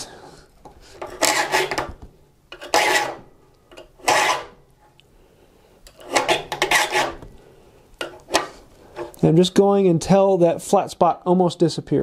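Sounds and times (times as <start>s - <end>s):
file strokes on saw teeth: 1.0s - 1.8s, 6.0s - 7.2s.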